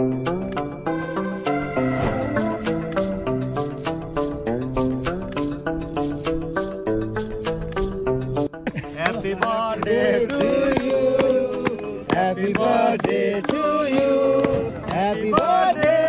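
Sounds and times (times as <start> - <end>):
music: 0.0 - 16.0
men singing a melody: 9.0 - 16.0.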